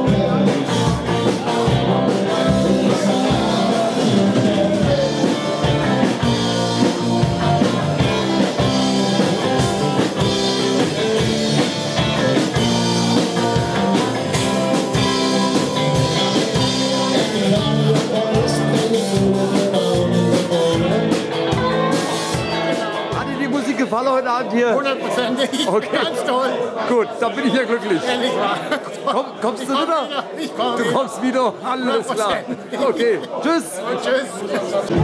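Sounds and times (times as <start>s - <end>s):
person singing: 0.0s - 10.0s, 14.9s - 23.2s
drum kit beat: 0.0s - 23.8s
electric guitars: 0.0s - 23.8s.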